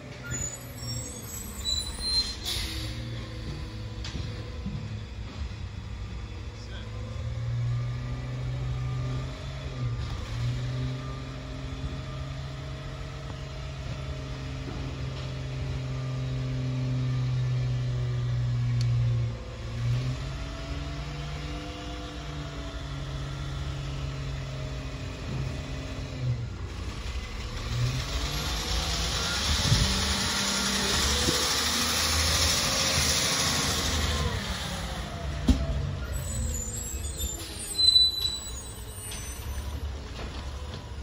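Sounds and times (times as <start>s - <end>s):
garbage truck engine revving: 6.9s - 38.6s.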